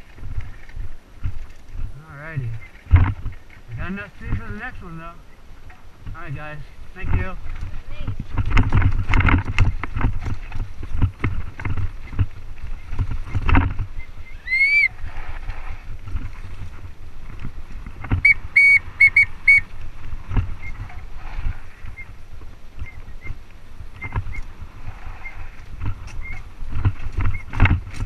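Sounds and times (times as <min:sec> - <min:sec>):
bike rattling over rocky trail: 0:00.0 - 0:28.0
wind rumbling on microphone: 0:00.0 - 0:28.0
short high squeaks: 0:14.0 - 0:15.4.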